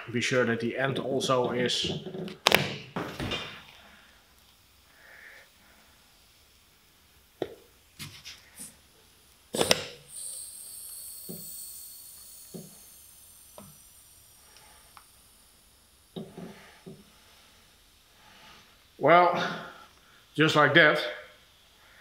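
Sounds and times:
sharp snap: 0:02.4 - 0:02.8.

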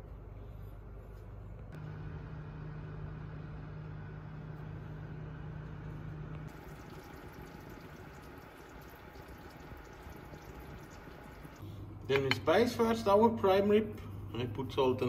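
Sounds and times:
oven humming: 0:01.5 - 0:15.0
food bubbling and sizzling: 0:06.5 - 0:11.7.

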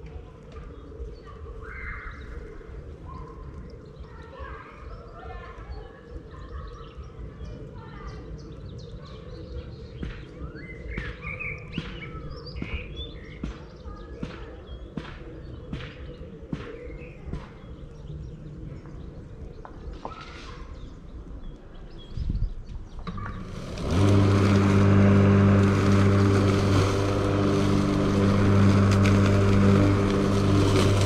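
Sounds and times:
faint bird chirps: 0:00.5 - 0:23.5
motor engine humming: 0:23.1 - 0:31.0.

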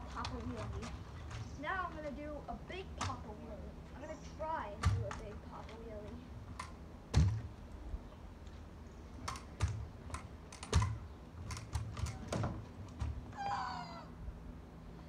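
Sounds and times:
kick scooter knocking on asphalt: 0:00.0 - 0:02.2, 0:02.8 - 0:03.4, 0:04.7 - 0:06.2, 0:07.1 - 0:07.5.

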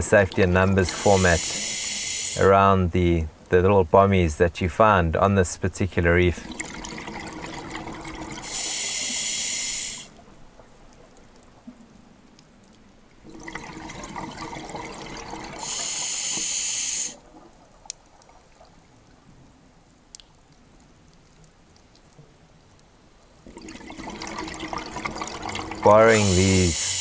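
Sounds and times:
exhaled bubbles gurgling: 0:00.0 - 0:02.0, 0:06.3 - 0:10.9, 0:13.2 - 0:19.0, 0:23.4 - 0:26.8
regulator inhale hiss: 0:00.9 - 0:02.4, 0:08.4 - 0:10.2, 0:15.6 - 0:17.2, 0:26.2 - 0:27.0
faint clicks: 0:17.8 - 0:18.4, 0:19.8 - 0:22.9.

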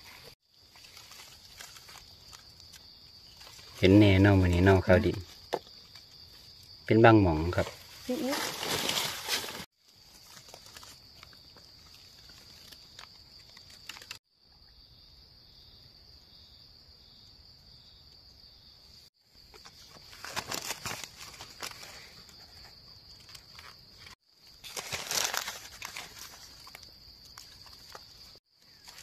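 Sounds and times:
dry leaves crackling and rustling: 0:00.0 - 0:05.4, 0:07.5 - 0:14.2, 0:19.5 - 0:22.2, 0:23.2 - 0:29.0
insects droning: 0:00.0 - 0:29.0.

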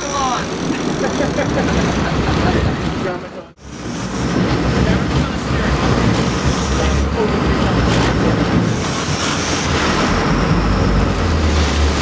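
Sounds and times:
boat engine rumbling: 0:00.0 - 0:12.0
wind and water hiss: 0:03.6 - 0:12.0.

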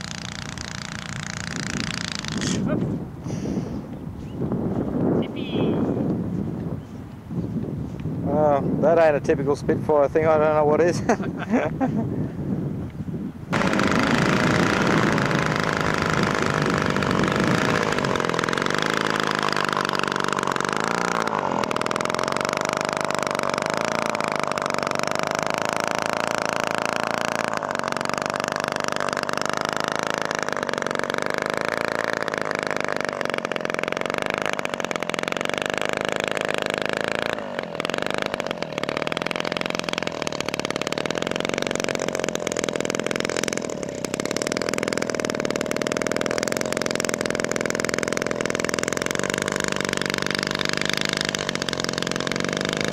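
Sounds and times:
model plane engine running: 0:00.0 - 0:02.8, 0:13.5 - 0:52.9.

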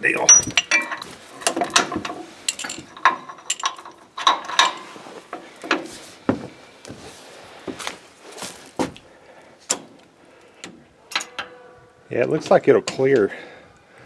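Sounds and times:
metal knocks and clanks: 0:00.0 - 0:06.5.

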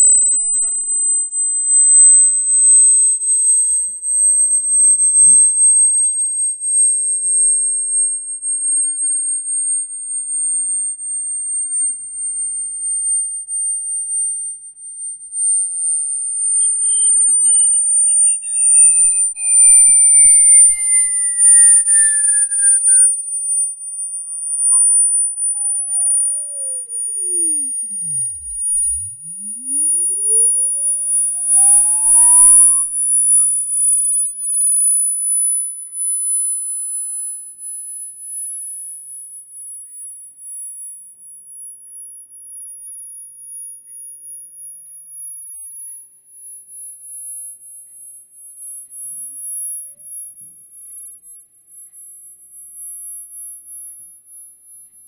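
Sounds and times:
high piercing tone rising in pitch: 0:00.0 - 0:00.8, 0:11.4 - 0:35.0, 0:49.0 - 0:50.5
fainter lower gliding tone: 0:11.4 - 0:34.2.

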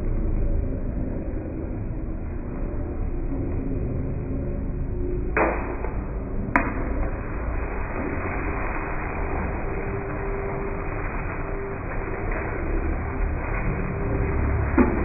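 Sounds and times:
steady hiss: 0:06.8 - 0:14.6.

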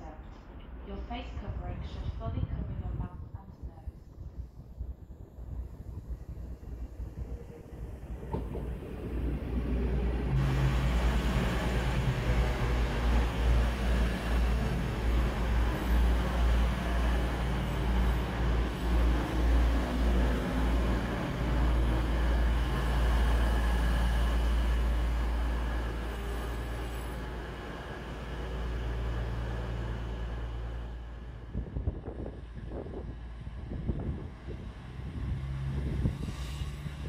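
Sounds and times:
diesel train engine rumble: 0:00.0 - 0:37.0
hiss: 0:36.1 - 0:37.0.

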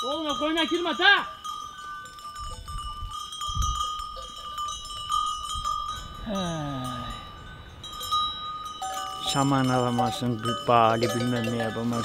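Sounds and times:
animal bells clinking: 0:00.0 - 0:12.0.

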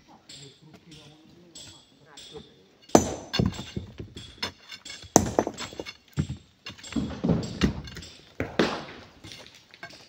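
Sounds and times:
hammer and pry bar striking stone: 0:02.9 - 0:08.1.

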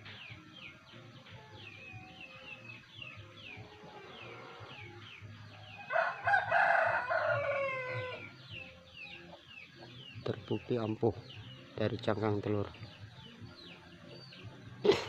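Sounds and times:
rooster crowing: 0:05.8 - 0:08.3.

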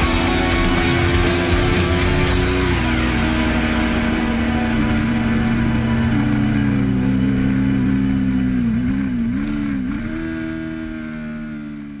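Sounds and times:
motorcycle engine steady pitch: 0:00.0 - 0:12.0.

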